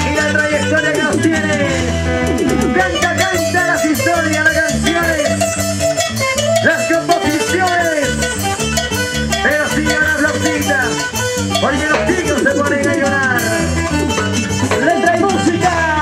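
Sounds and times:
live band playing latin dance music: 0:00.0 - 0:16.0.

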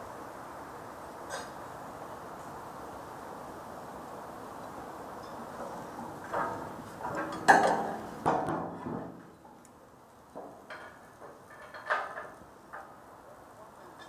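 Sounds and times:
tool clanking on steel beams: 0:06.2 - 0:09.4, 0:10.4 - 0:13.0.

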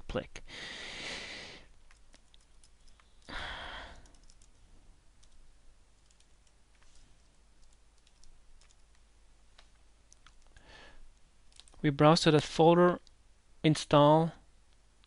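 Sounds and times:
person breathing: 0:00.4 - 0:01.8, 0:03.2 - 0:04.4, 0:10.6 - 0:11.1
keyboard typing: 0:01.8 - 0:04.6, 0:05.2 - 0:05.4, 0:06.0 - 0:07.0, 0:07.6 - 0:10.6.

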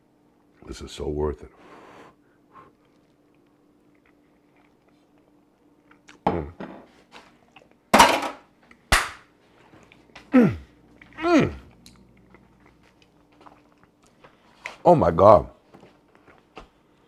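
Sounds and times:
man's wordless vocal sounds: 0:10.3 - 0:11.7.

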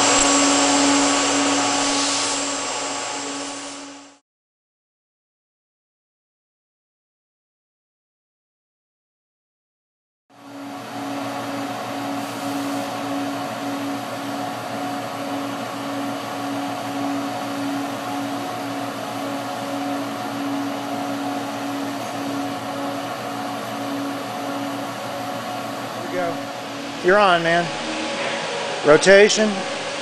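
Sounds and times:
fan noise: 0:00.0 - 0:04.2, 0:10.4 - 0:30.0
shop equipment humming: 0:00.0 - 0:04.2, 0:10.4 - 0:30.0.

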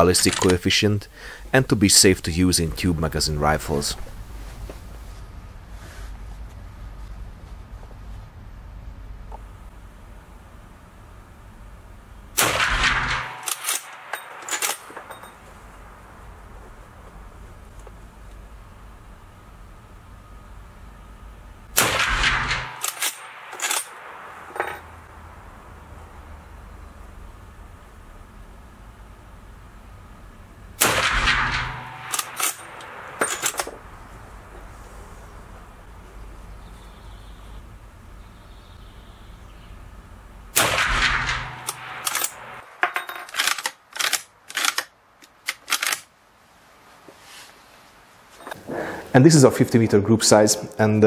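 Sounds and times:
rifle shot echoing: 0:12.4 - 0:16.5, 0:21.7 - 0:25.8, 0:30.8 - 0:34.5, 0:40.5 - 0:42.6
rifle lever clacking: 0:13.4 - 0:15.2, 0:22.8 - 0:23.9, 0:43.2 - 0:46.1.

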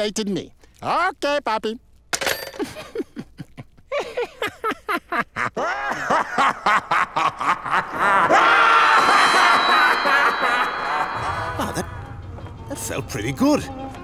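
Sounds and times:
music: 0:09.0 - 0:14.0.

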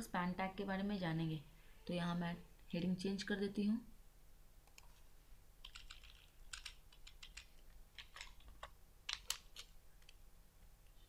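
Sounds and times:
computer keyboard keystrokes: 0:05.6 - 0:10.2.

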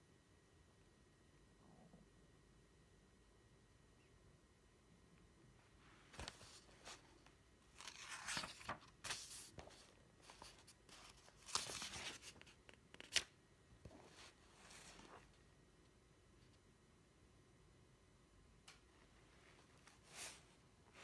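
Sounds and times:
faint rustling and scraping: 0:13.8 - 0:15.4, 0:19.0 - 0:21.0.

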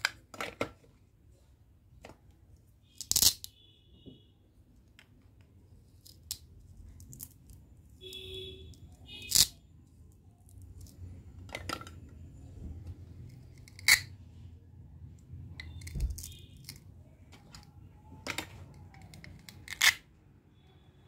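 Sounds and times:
plastic toy pieces clacking: 0:02.9 - 0:03.5, 0:08.7 - 0:09.6, 0:13.2 - 0:14.1, 0:15.6 - 0:20.1.

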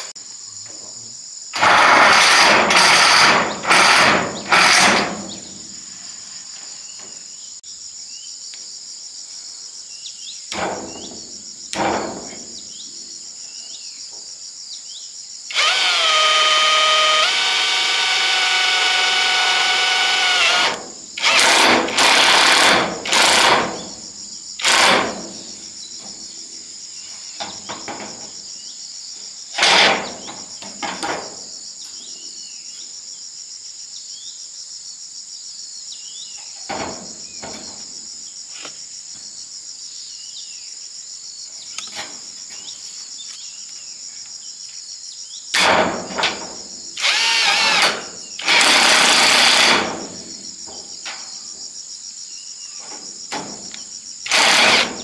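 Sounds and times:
insects droning: 0:00.0 - 0:55.0
power drill running: 0:01.6 - 0:05.2, 0:15.5 - 0:23.7, 0:24.6 - 0:25.0, 0:47.0 - 0:49.8, 0:54.3 - 0:55.0.

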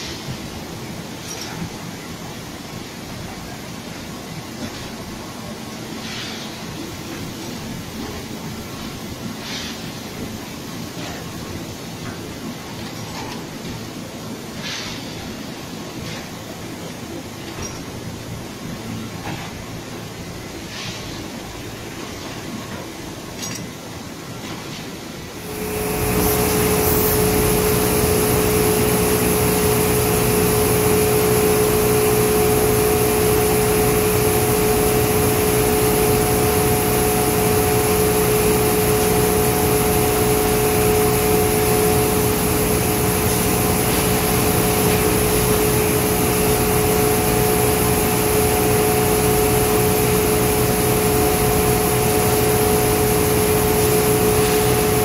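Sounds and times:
machinery motor drone and whine: 0:25.3 - 0:55.0.

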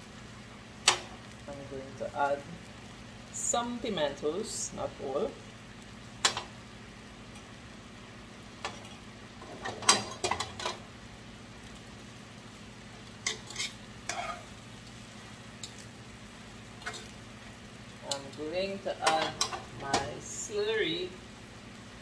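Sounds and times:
liquid simmering with faint sizzle: 0:00.0 - 0:22.0
metal tongs scraping a skillet: 0:08.6 - 0:10.8, 0:13.2 - 0:14.6, 0:15.6 - 0:15.9, 0:16.8 - 0:17.2, 0:18.1 - 0:20.2.

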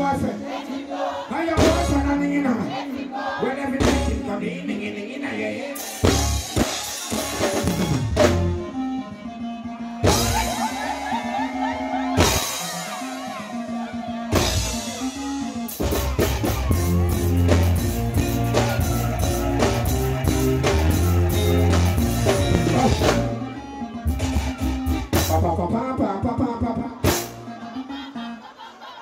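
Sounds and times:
dancehall music over sound system: 0:08.6 - 0:29.0.

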